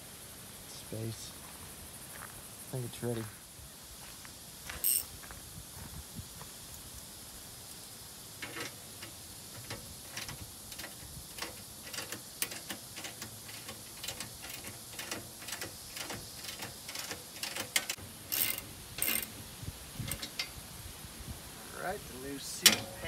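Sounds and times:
ratchet wrench clicking: 0:08.4 - 0:19.3.

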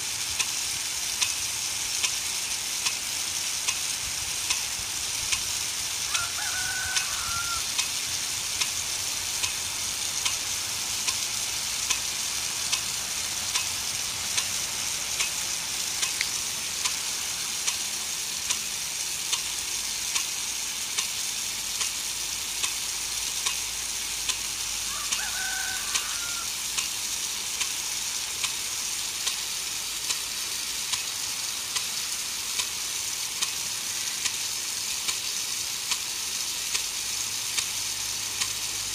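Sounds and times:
hiss of water spray: 0:00.0 - 0:38.9
sprinkler arm ticking: 0:00.0 - 0:38.9.

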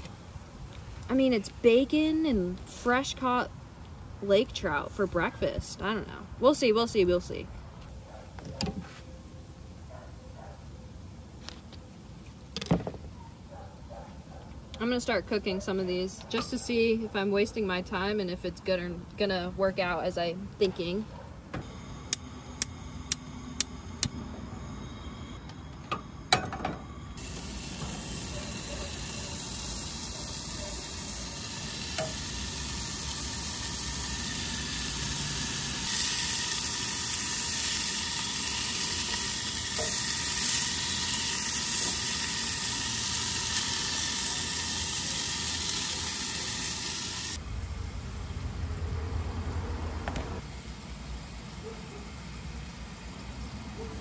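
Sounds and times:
fish sizzling in a pot: 0:27.2 - 0:47.4
camp stove clicks: 0:31.9 - 0:32.2.

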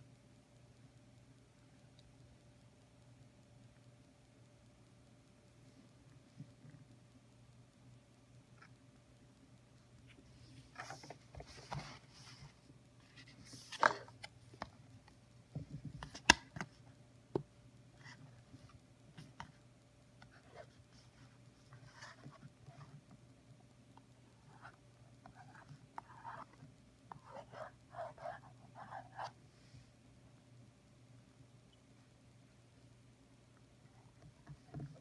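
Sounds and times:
pen nib scratching on paper: 0:24.4 - 0:29.3.

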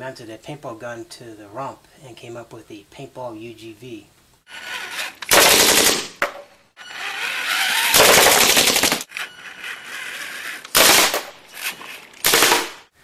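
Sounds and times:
paintball gun firing bursts: 0:05.3 - 0:06.3, 0:07.9 - 0:09.0, 0:10.7 - 0:11.4, 0:12.2 - 0:12.9.

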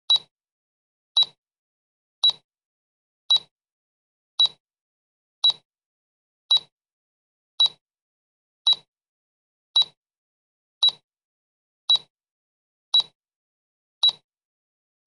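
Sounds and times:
timer ticking clicks: 0:02.2 - 0:02.4, 0:04.4 - 0:04.6, 0:05.4 - 0:05.6, 0:07.6 - 0:07.8, 0:08.7 - 0:08.9, 0:09.8 - 0:10.0.

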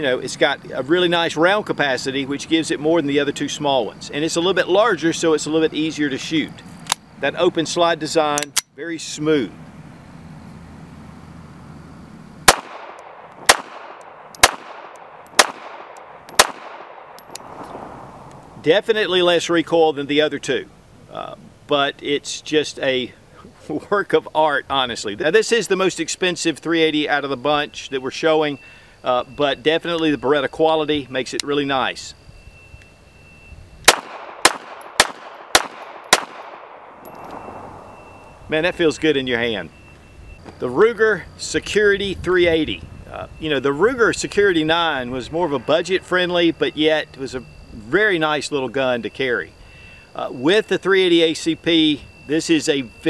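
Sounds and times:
pistol shots with echo: 0:12.5 - 0:17.9, 0:33.9 - 0:38.0.

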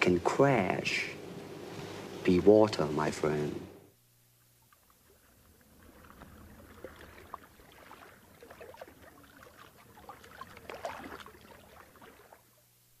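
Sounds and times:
water lapping and trickling: 0:04.2 - 0:13.0
small splashes and drips: 0:04.4 - 0:12.7.

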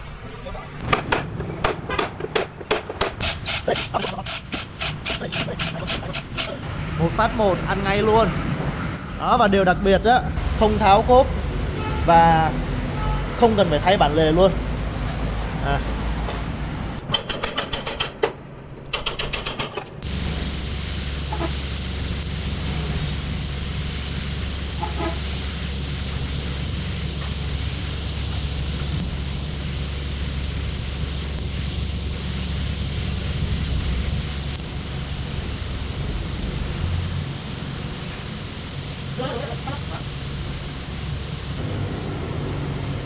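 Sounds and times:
rapid mechanical rattle: 0:00.9 - 0:06.6, 0:17.1 - 0:20.2
machinery hiss and hum: 0:03.2 - 0:06.7, 0:20.0 - 0:41.6.

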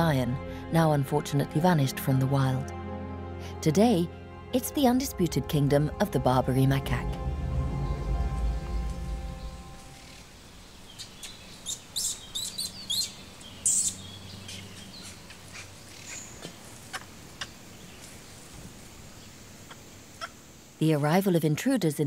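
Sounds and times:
background music: 0:00.0 - 0:10.8
faint forest background: 0:00.0 - 0:22.0
songbirds chirping: 0:03.6 - 0:21.2.

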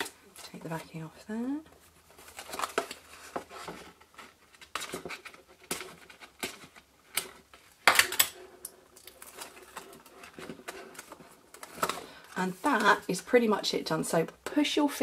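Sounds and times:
paper clicks and crinkles: 0:02.0 - 0:13.2.

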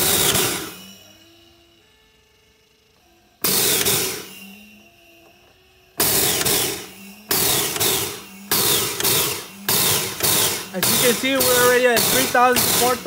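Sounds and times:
rushing exhaust air bursts: 0:00.0 - 0:01.1, 0:03.4 - 0:04.9, 0:06.0 - 0:13.0
gas booster pump stroking: 0:06.0 - 0:13.0.

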